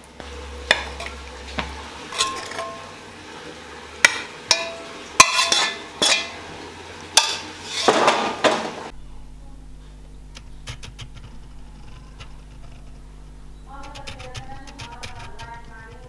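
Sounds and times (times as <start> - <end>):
metal spoon clinking on plate: 0.7 - 2.9, 4.0 - 6.4.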